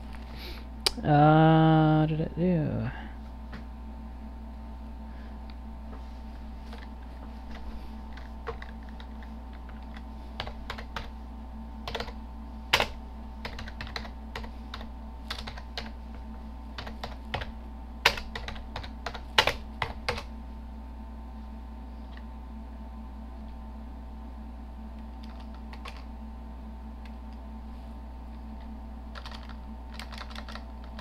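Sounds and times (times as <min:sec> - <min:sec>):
steady low hum: 0:00.0 - 0:31.0
keyboard typing clicks: 0:11.9 - 0:12.2, 0:12.8 - 0:16.0, 0:16.8 - 0:20.3, 0:25.2 - 0:26.1, 0:29.1 - 0:31.0.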